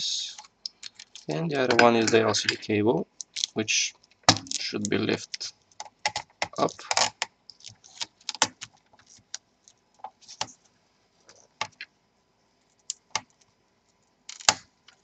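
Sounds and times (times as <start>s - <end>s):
cable connectors clicking: 0.4s - 2.6s, 3.2s - 3.6s, 4.3s - 9.4s.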